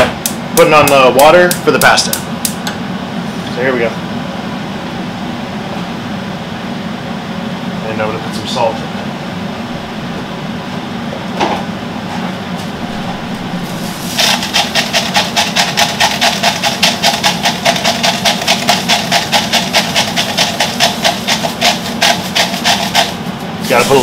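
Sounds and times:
extractor fan humming: 0:00.0 - 0:24.0
salt mill grinding: 0:13.9 - 0:24.0.

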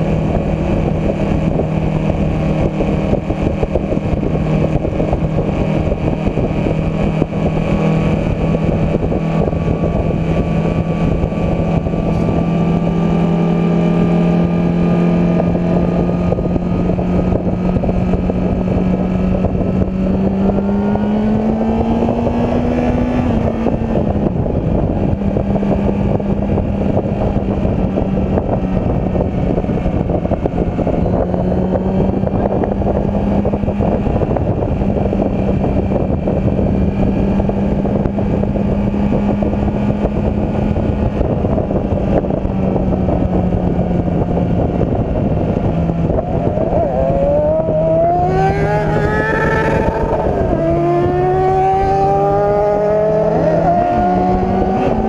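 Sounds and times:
motorcycle engine cruising: 0:00.0 - 0:55.0
wind rushing over microphone: 0:00.0 - 0:55.0.

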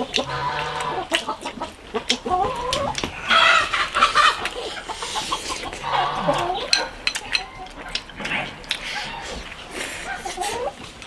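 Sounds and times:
chicken squawk: 0:00.0 - 0:10.8
chickens clucking: 0:00.0 - 0:11.0
chopsticks clicking against bowls: 0:06.3 - 0:08.9.

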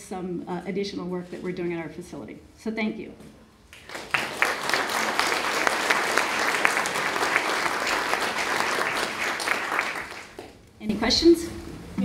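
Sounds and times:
audience applauding: 0:03.8 - 0:10.6.

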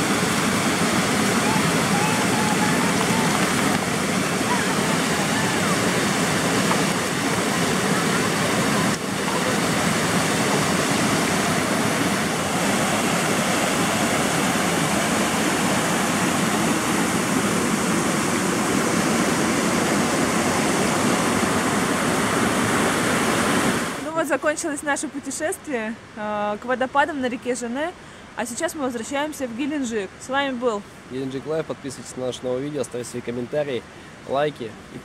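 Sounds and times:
rushing white water: 0:00.0 - 0:26.1.

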